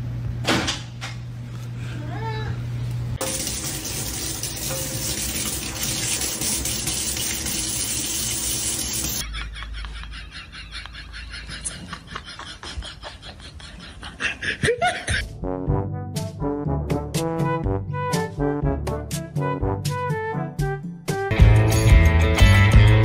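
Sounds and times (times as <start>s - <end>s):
faucet water running into sink: 3.2s - 9.2s.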